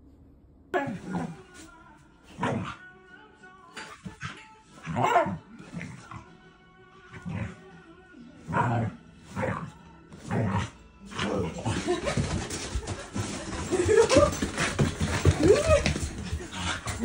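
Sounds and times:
background music: 0:00.7 - 0:17.0
scuffling and rustling: 0:09.3 - 0:17.0.

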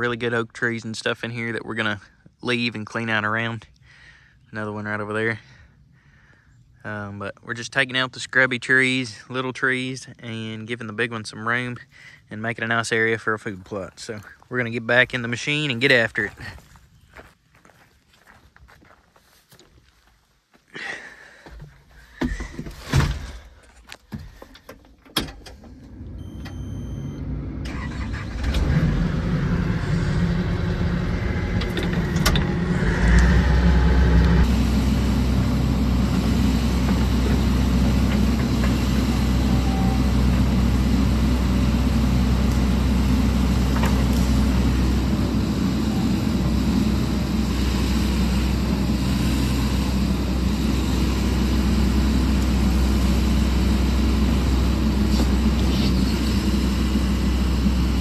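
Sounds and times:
diesel engine running: 0:25.6 - 0:58.0
electronic beep: 0:26.2 - 0:27.2.

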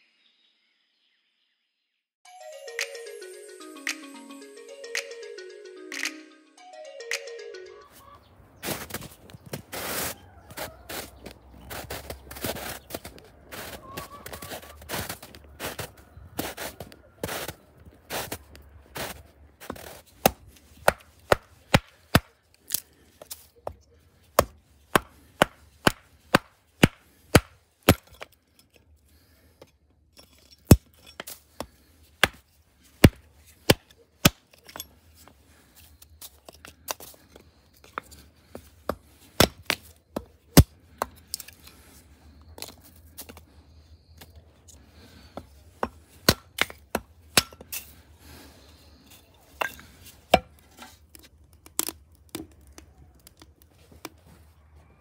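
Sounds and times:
hatchet chopping wood: 0:19.8 - 0:22.8, 0:24.4 - 0:28.3, 0:30.7 - 0:32.4, 0:33.0 - 0:34.5, 0:38.9 - 0:41.4, 0:45.8 - 0:47.8.

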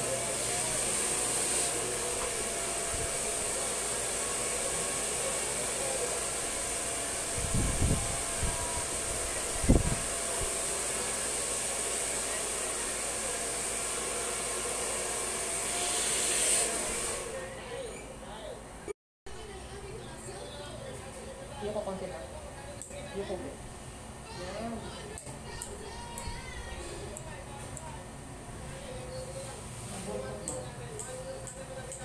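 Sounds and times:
hair dryer blowing: 0:00.0 - 0:17.5.

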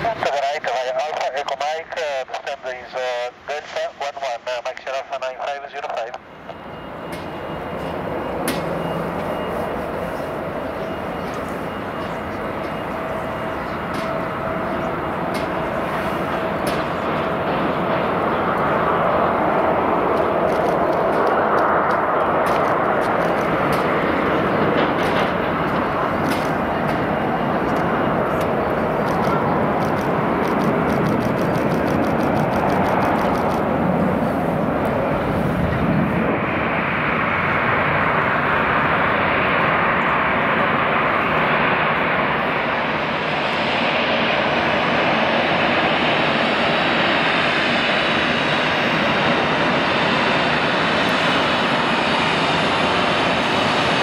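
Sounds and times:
jet engines at taxi power: 0:00.0 - 0:54.0.

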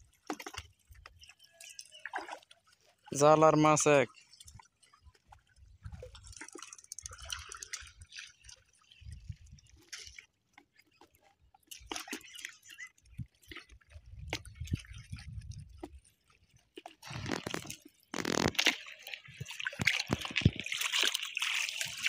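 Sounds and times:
hands splashing with net: 0:17.0 - 0:22.0.

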